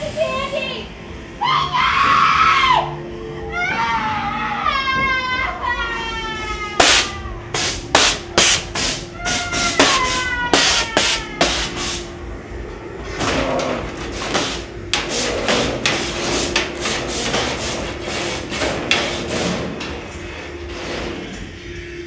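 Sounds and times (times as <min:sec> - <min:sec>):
steady low hum: 0:00.0 - 0:01.9, 0:02.9 - 0:22.0
falling eerie tones: 0:00.8 - 0:07.6.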